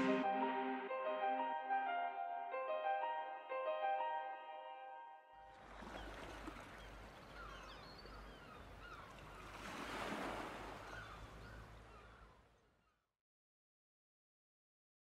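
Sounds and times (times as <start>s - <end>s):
wind: 5.4s - 13.0s
waves: 5.5s - 12.6s
birds chirping: 5.8s - 9.6s, 10.6s - 12.4s.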